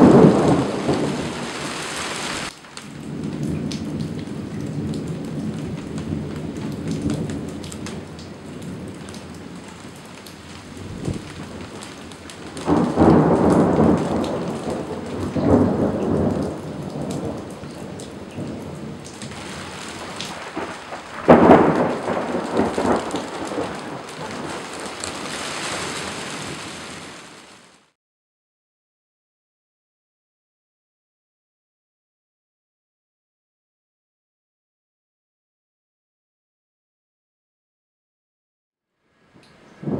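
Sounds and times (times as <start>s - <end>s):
rolling thunder: 0.0s - 27.3s
rain hissing: 0.0s - 28.0s.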